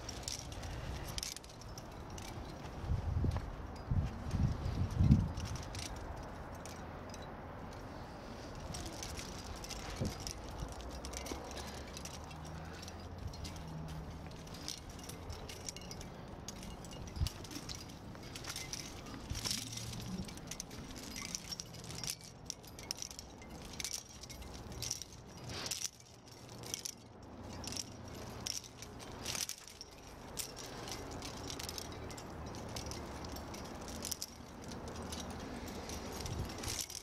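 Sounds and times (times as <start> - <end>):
climbing gear clinking: 0.0 - 37.0.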